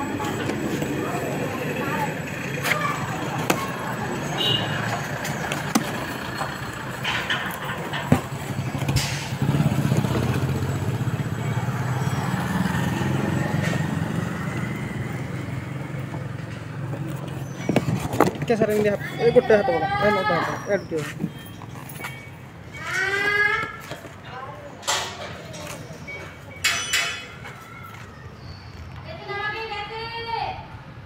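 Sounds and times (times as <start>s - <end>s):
vehicle engine running: 0.0s - 22.7s
cardboard carton clicks and scrapes: 17.0s - 18.5s.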